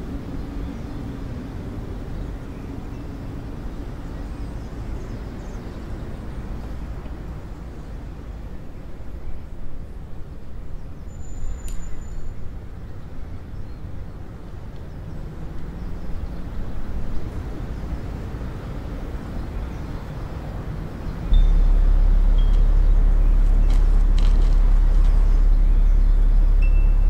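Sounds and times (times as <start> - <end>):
low outdoor rumble: 12.2 - 27.0.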